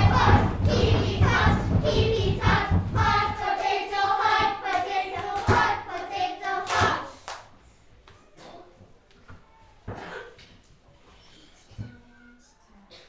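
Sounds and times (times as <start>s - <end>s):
children singing: 0.0s - 7.2s
hand claps: 4.4s - 7.5s.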